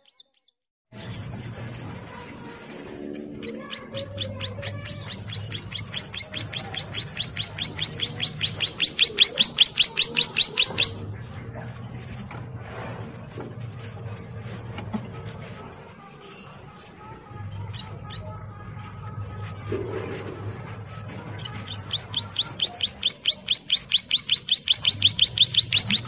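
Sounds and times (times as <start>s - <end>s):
soft bird chirps: 0.0s - 12.4s, 21.3s - 26.0s
bird trilling: 3.4s - 11.0s, 21.3s - 26.0s.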